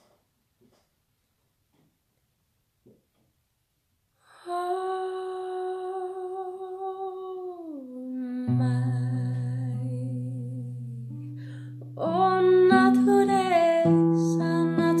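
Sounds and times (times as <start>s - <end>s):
acoustic guitar: 8.4s - 15.0s.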